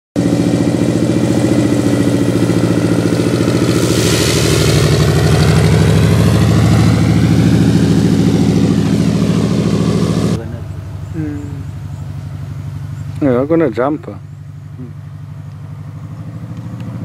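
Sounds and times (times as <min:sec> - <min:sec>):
airplane engine and propeller: 0:00.2 - 0:15.6.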